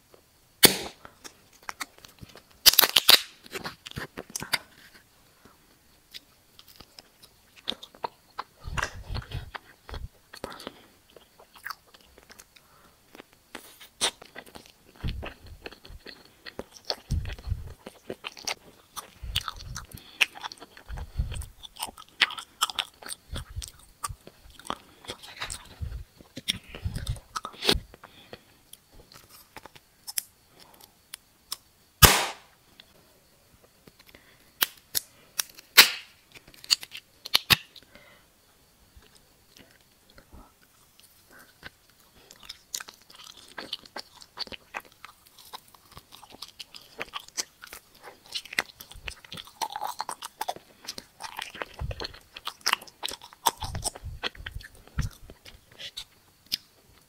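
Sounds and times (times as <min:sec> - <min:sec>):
chewing gummy candy: 0:01.0 - 0:31.7, 0:33.6 - 0:37.9, 0:38.9 - 0:57.0
plastic wrapper crackling: 0:01.5 - 0:04.6.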